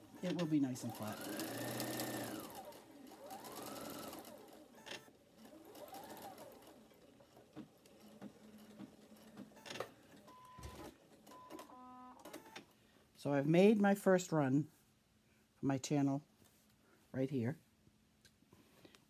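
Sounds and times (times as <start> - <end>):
sewing machine stitching: 0.0 - 12.6.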